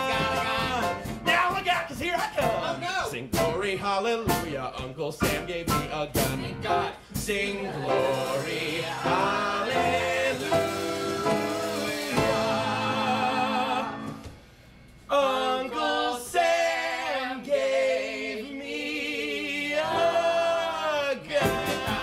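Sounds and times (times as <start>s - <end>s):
vocal trio singing in harmony: 0.0s - 1.2s, 5.7s - 14.4s, 15.1s - 22.0s.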